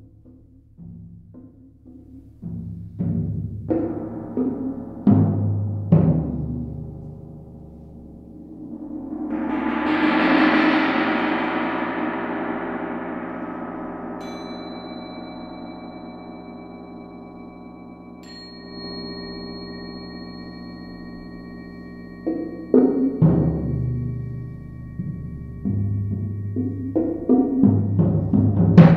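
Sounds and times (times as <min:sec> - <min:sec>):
large gong rolled: 0:07.9 - 0:17.5
thin high ringing tone: 0:08.4 - 0:27.7.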